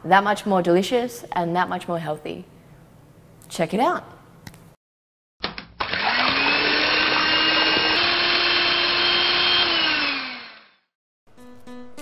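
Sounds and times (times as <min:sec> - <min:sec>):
small electric motor whirring: 0:05.9 - 0:10.9.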